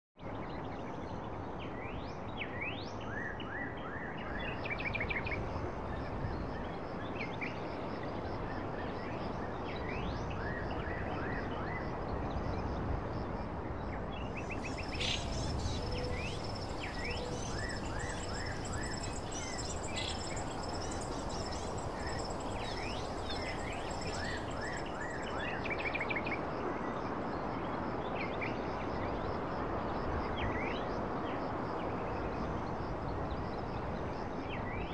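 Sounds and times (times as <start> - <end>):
steady background hiss: 14.0 - 25.8
small birds chirping: 14.3 - 25.3.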